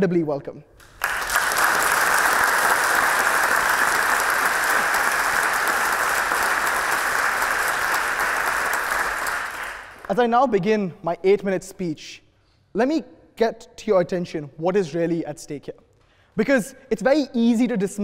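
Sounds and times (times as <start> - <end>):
crowd applauding: 0.8 - 10.2.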